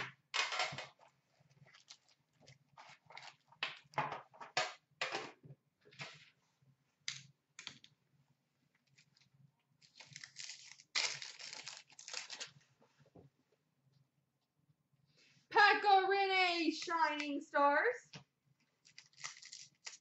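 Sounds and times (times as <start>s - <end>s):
foil packs tearing and crinkling: 9.8s - 12.6s, 18.9s - 20.0s.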